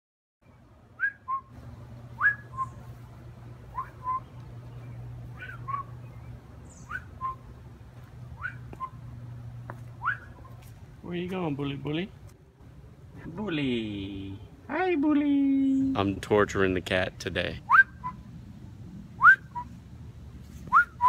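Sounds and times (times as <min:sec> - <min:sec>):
steady low hum: 0:00.4 - 0:21.0
whistled two-note call: 0:19.2 - 0:19.7, 0:20.7 - 0:21.0.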